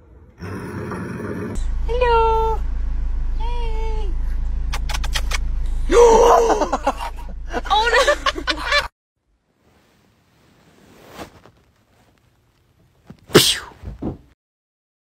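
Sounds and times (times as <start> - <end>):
person sneezing: 13.3 - 13.9.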